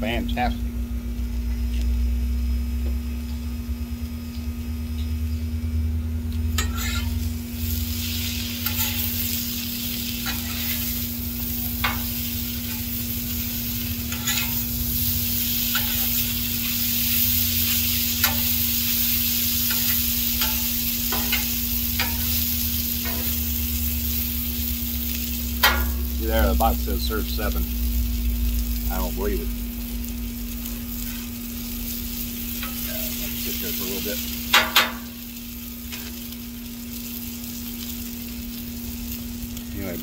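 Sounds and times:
potatoes sizzling on griddle: 0:03.2 - 0:40.0
metal spatula scraping griddle: 0:06.6 - 0:07.3, 0:08.0 - 0:14.8, 0:15.6 - 0:18.6, 0:19.4 - 0:22.4, 0:23.0 - 0:23.4, 0:31.0 - 0:31.4.

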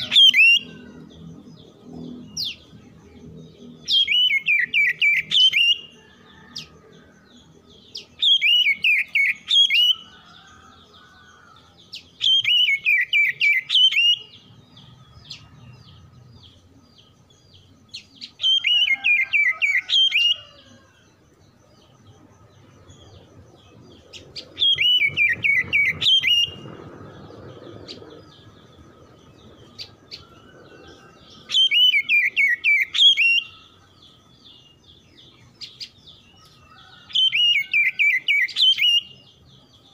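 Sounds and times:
bird singing repeated notes: 0:00.0 - 0:06.5, 0:07.3 - 0:10.4, 0:11.6 - 0:20.7, 0:21.3 - 0:39.9.

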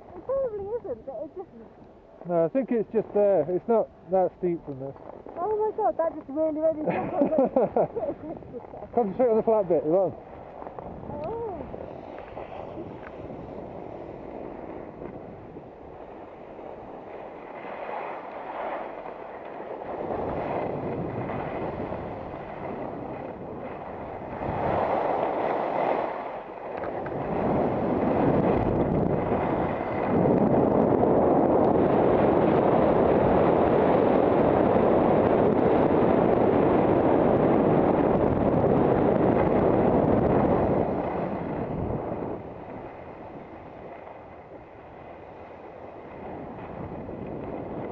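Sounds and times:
wind rushing on microphone: 0:00.0 - 0:47.9
skis scraping on packed snow: 0:02.2 - 0:11.1, 0:11.7 - 0:37.4, 0:38.0 - 0:47.9.

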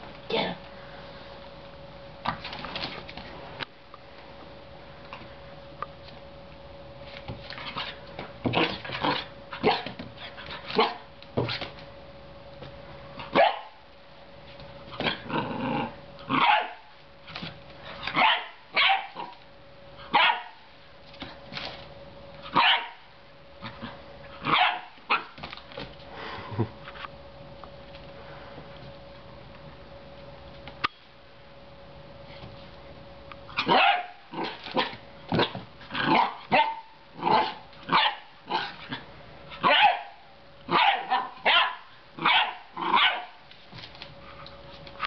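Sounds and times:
puppy barking: 0:08.6 - 0:09.8, 0:10.8 - 0:11.0, 0:13.3 - 0:13.8, 0:16.3 - 0:16.9, 0:18.1 - 0:19.3, 0:20.1 - 0:20.6, 0:22.5 - 0:23.0, 0:24.4 - 0:25.4, 0:33.6 - 0:38.7, 0:39.6 - 0:43.4
puppy growling: 0:15.0 - 0:16.4.

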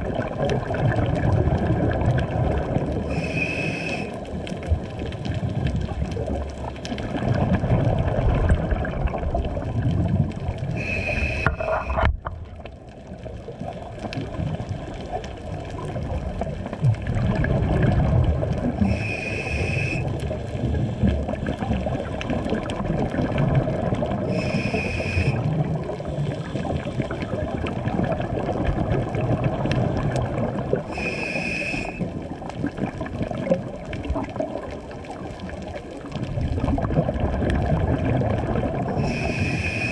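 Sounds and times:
exhaled bubbles bubbling: 0:00.0 - 0:39.9
regulator inhalation hiss: 0:03.1 - 0:04.2, 0:10.8 - 0:12.0, 0:18.8 - 0:20.1, 0:24.3 - 0:25.5, 0:30.9 - 0:32.1, 0:39.0 - 0:39.9.

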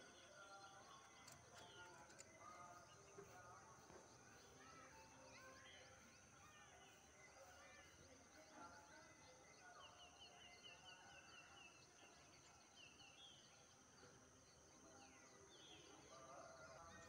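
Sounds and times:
faint birdsong: 0:00.0 - 0:17.0.

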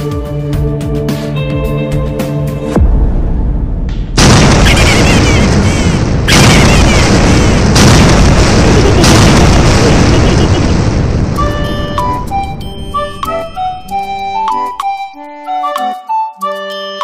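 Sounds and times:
explosion booms with rumbling tail: 0:02.8 - 0:12.5.

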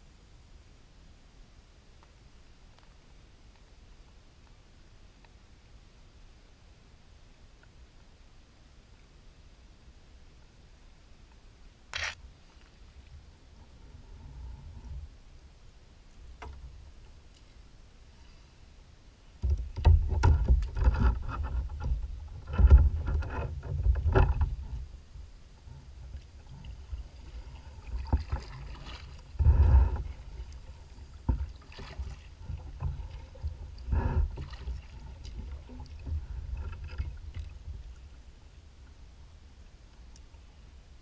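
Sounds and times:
knocks and splashes: 0:19.4 - 0:24.8, 0:26.6 - 0:38.0
water lapping against kayak hull: 0:19.4 - 0:39.0.

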